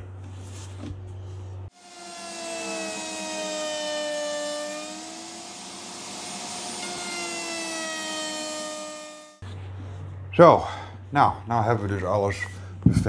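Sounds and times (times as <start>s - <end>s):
router whining while cutting wood: 1.7s - 9.4s.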